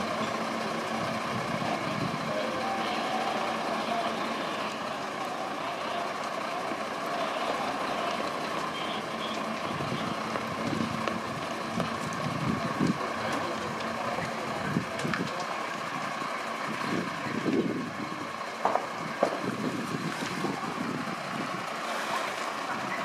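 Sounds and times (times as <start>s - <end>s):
fire engines idling drone: 0.0s - 23.0s.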